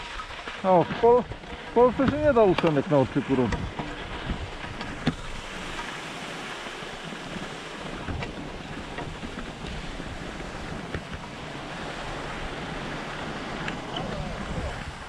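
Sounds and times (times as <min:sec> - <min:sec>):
wind on microphone: 0:00.9 - 0:15.0
skis hissing over snow: 0:05.2 - 0:08.0.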